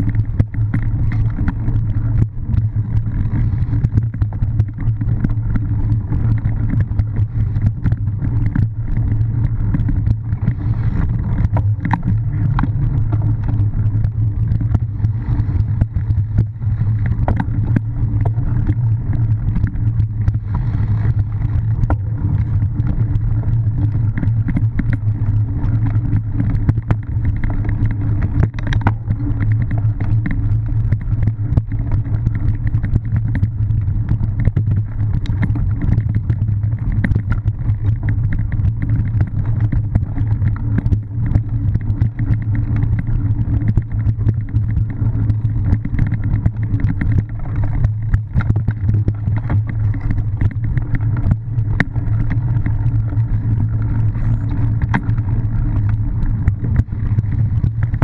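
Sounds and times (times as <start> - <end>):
bike rumbling over rough dirt: 0.0 - 58.0.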